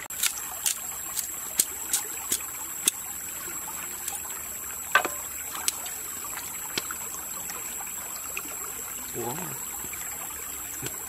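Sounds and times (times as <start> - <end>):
stream trickling: 0.0 - 11.0
bamboo cracking: 0.1 - 3.0, 4.9 - 5.9
knife cutting bamboo: 0.2 - 3.0.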